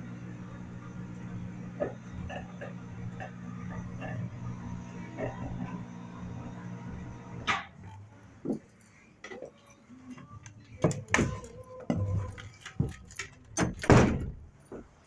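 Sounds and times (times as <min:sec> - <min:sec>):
knocks and clanks: 0:10.8 - 0:14.9.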